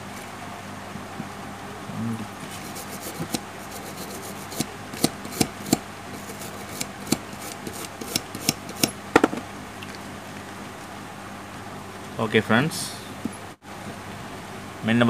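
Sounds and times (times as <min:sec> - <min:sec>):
toothbrush scrubbing circuit board: 0:02.5 - 0:08.9.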